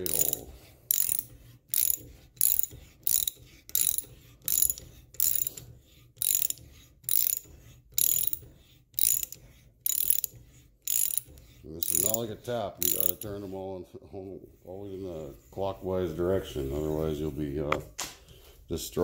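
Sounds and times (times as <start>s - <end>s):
hand reamer rasping in steel: 0.0s - 13.6s.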